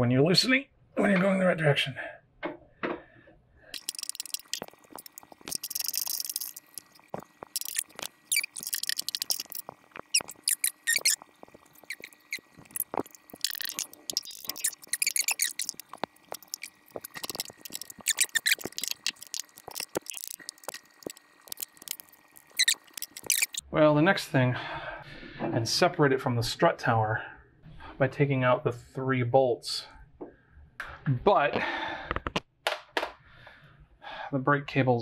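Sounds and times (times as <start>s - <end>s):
ratchet clicks: 3.8s - 6.9s
bolt squeaks: 10.1s - 11.2s, 22.5s - 23.6s.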